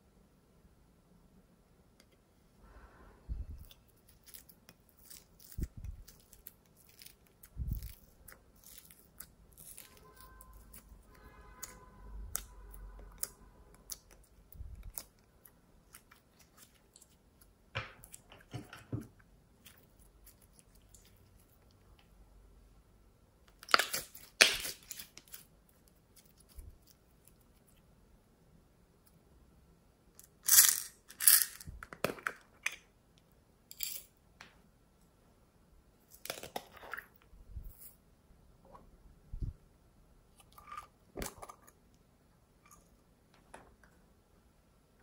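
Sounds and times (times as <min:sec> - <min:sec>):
hands squishing slime: 0:03.6 - 0:10.9.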